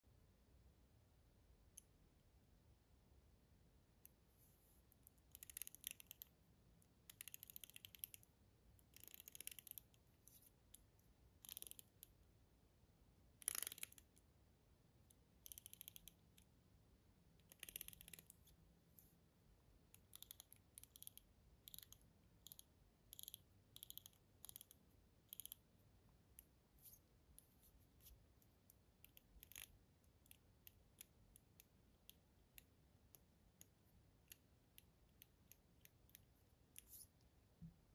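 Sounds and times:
fidget ring ratchet clicks: 0:05.3 - 0:06.3, 0:07.1 - 0:08.2, 0:08.9 - 0:10.0, 0:11.4 - 0:12.1, 0:13.4 - 0:14.1, 0:15.4 - 0:16.2, 0:17.5 - 0:18.3, 0:20.0 - 0:25.6, 0:29.0 - 0:29.7.

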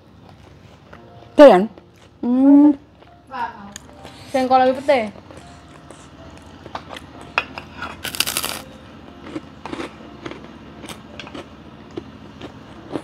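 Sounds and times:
loud noisy crunch: 0:08.0 - 0:08.7
chewing: 0:09.2 - 0:13.0.

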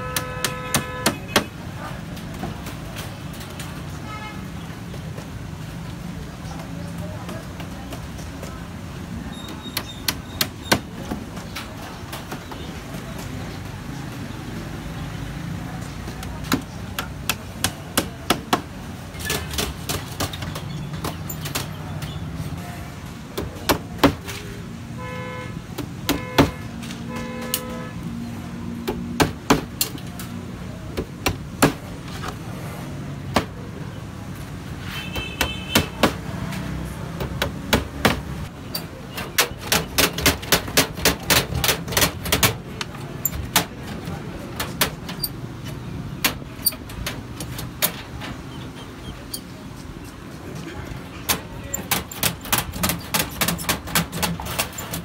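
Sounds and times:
horn toots: 0:00.0 - 0:01.5, 0:25.0 - 0:28.0.

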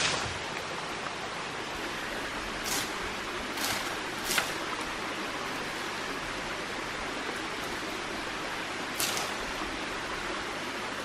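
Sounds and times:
steady hiss: 0:00.0 - 0:11.0
dry leaves and twigs rustling: 0:01.8 - 0:10.0.

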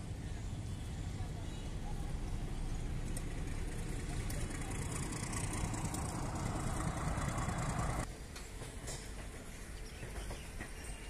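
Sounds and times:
vehicle engines rumbling: 0:00.0 - 0:08.1.

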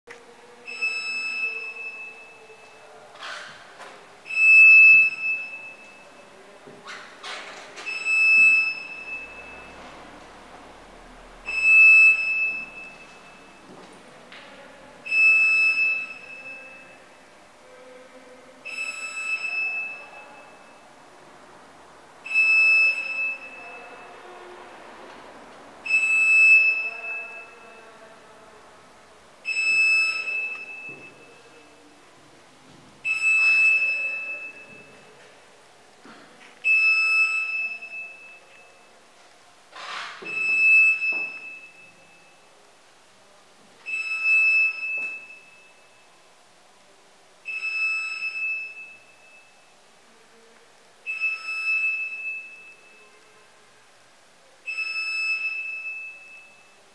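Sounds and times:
high ringing tone: 0:00.5 - 0:03.1, 0:04.2 - 0:06.6, 0:07.8 - 0:09.9, 0:11.4 - 0:13.8, 0:15.0 - 0:20.8, 0:22.3 - 0:24.2, 0:29.4 - 0:31.9, 0:33.0 - 0:35.1, 0:36.7 - 0:39.0, 0:40.2 - 0:42.5, 0:43.8 - 0:46.2, 0:47.5 - 0:49.8.

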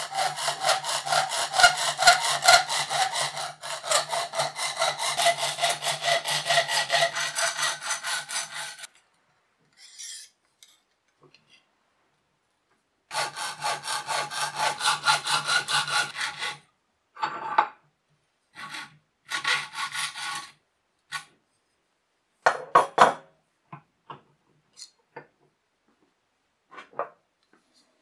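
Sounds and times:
hacksaw cutting metal: 0:00.0 - 0:08.9, 0:13.1 - 0:16.6.

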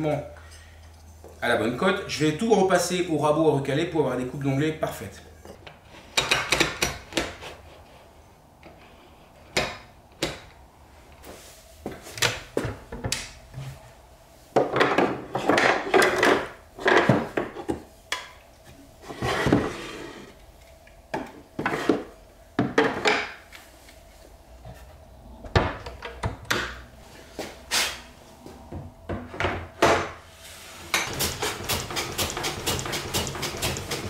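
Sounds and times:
wooden pieces and tools clattering: 0:14.6 - 0:17.8.

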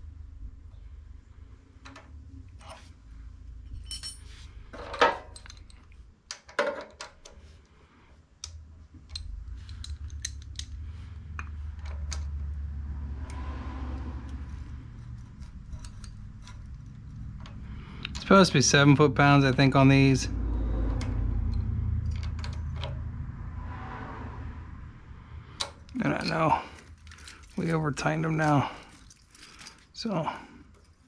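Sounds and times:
low steady hum: 0:00.0 - 0:31.0
metal tools clinking: 0:03.7 - 0:05.9, 0:15.0 - 0:17.6, 0:25.9 - 0:31.0.

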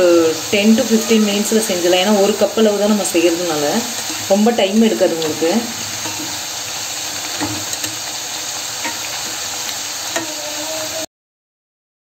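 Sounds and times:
crackers deep-frying in oil: 0:00.0 - 0:11.1.

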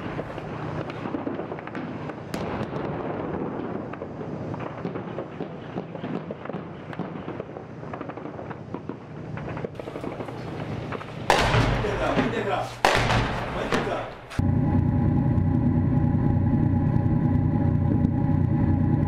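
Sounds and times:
sharp cracks and clatter: 0:00.0 - 0:14.4
diesel engine running: 0:14.4 - 0:19.0.

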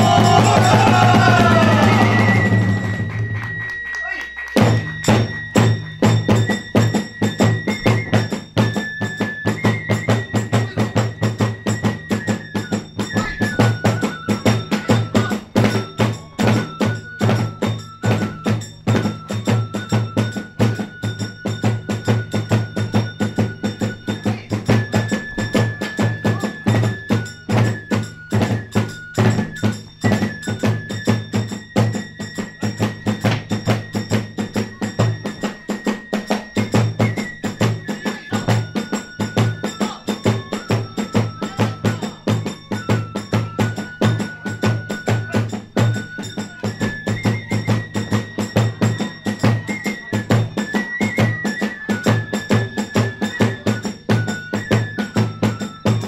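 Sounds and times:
large drum beating: 0:00.0 - 0:03.6
bamboo flute high notes: 0:00.0 - 0:56.0
ringing hand cymbals: 0:00.0 - 0:56.0.

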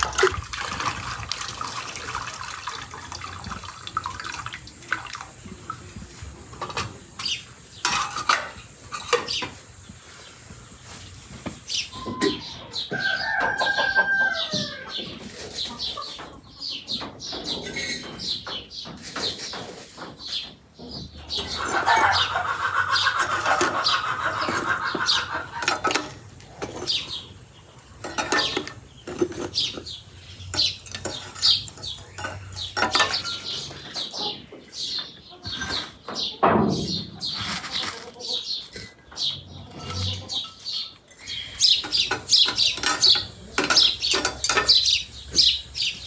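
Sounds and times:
chickens clucking: 0:00.0 - 0:46.0
clinks and knocks: 0:06.5 - 0:09.6, 0:25.6 - 0:27.2, 0:28.0 - 0:34.4, 0:38.7 - 0:45.5.

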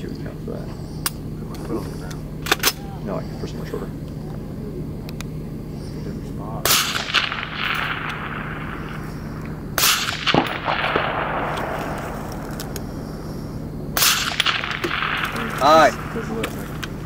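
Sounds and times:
rifle shots: 0:06.6 - 0:13.2, 0:14.0 - 0:17.0
rolling echo: 0:06.6 - 0:17.0.

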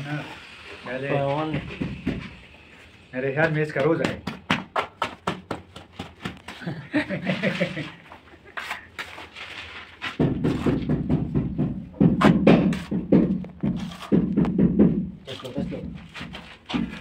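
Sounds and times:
trowel scraping against wall: 0:07.1 - 0:11.1, 0:12.2 - 0:14.6, 0:15.2 - 0:17.0.

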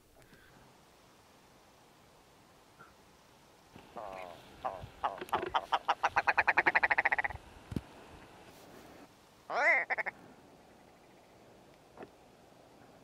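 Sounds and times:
grouse calling: 0:03.8 - 0:07.4, 0:09.5 - 0:11.4.

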